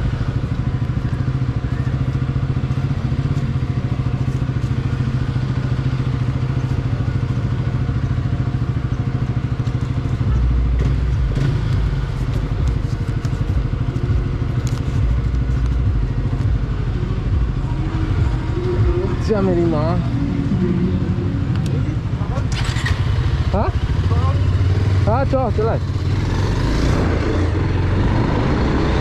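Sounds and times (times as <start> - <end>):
motorcycle engine running: 0.0 - 29.0
deep low rumble: 10.2 - 22.5.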